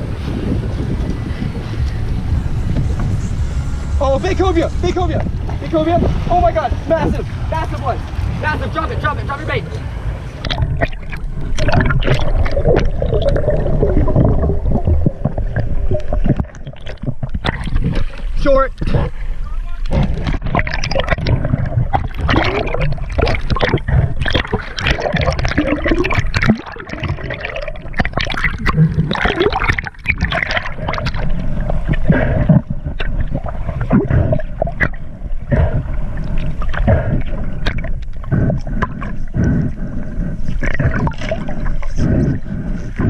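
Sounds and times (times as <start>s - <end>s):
water gurgling and sloshing: 0.0s - 43.0s
crackles and splashes: 10.2s - 43.0s.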